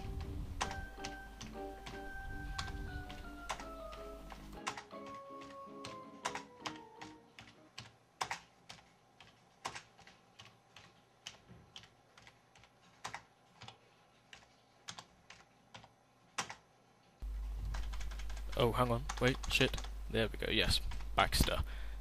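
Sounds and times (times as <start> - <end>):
musical notes: 0.0 - 7.4
keyboard keystrokes clicking: 0.0 - 16.6, 17.7 - 19.9.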